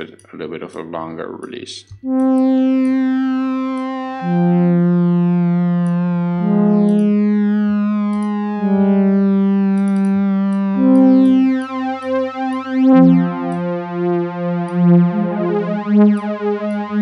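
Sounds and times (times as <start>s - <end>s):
synthesizer pad chords: 2.0s - 17.0s.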